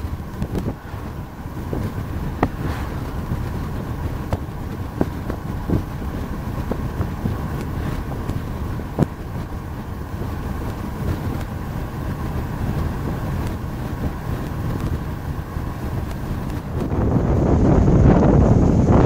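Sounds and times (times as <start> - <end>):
road and engine rumble in a cabin: 0.0 - 19.0
wind buffeting the microphone: 0.0 - 19.0.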